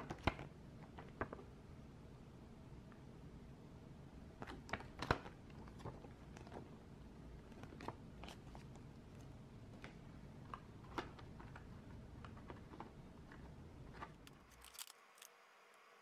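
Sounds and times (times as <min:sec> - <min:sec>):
paper rustling and crinkling: 0:00.0 - 0:01.4, 0:04.4 - 0:06.7, 0:07.4 - 0:15.3.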